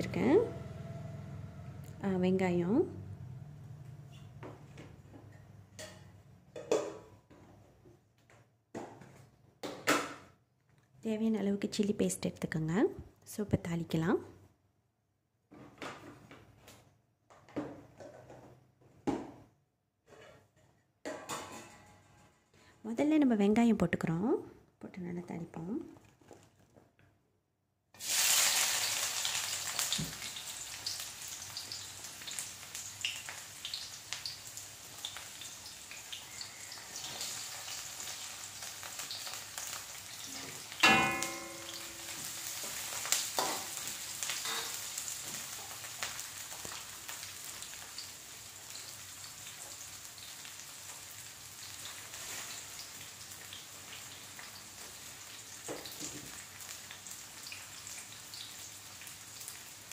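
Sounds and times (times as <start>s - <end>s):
onions sizzling in oil: 28.0s - 59.9s
ladle clanging on wok: 40.8s - 42.6s.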